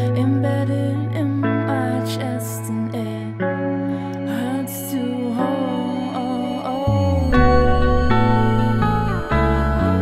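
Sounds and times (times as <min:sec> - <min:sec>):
slow background music: 0:00.0 - 0:10.0
steady low bass note: 0:07.0 - 0:10.0.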